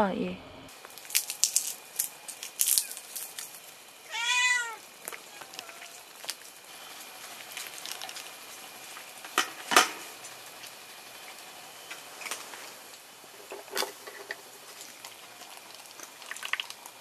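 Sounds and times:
cat meowing: 4.1 - 6.1.

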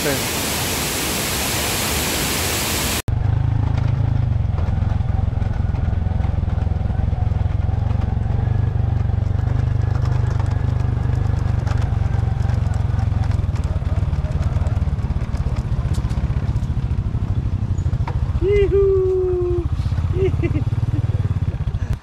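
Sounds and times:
waterfall rushing: 0.0 - 3.1
motorcycle engine running: 3.1 - 22.0.

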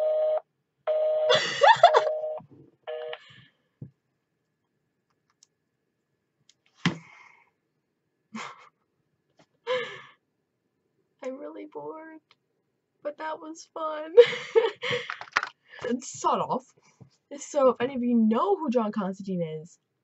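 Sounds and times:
electronic phone tones: 1.9 - 3.2.

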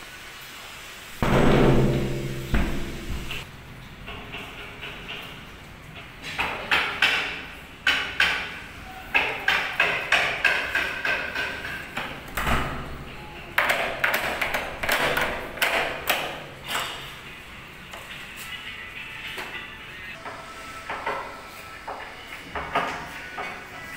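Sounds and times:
dull thud: 1.2 - 3.4.

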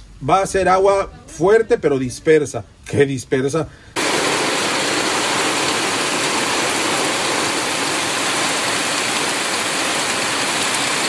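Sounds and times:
heavy rain pouring: 4.0 - 11.0.

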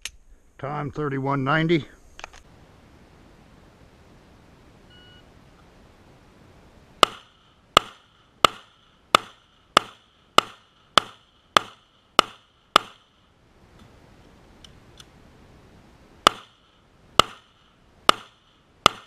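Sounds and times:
pistol shots ringing: 7.0 - 13.1.

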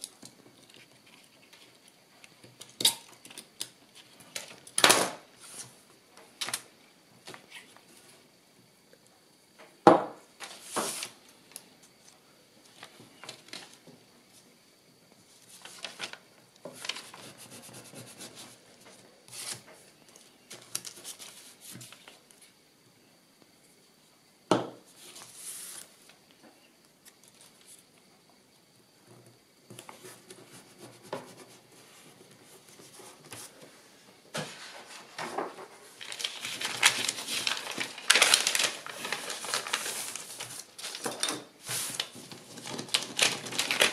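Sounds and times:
paper rustling and sliding: 10.4 - 11.2, 15.4 - 19.7, 24.9 - 25.9, 29.8 - 43.9.

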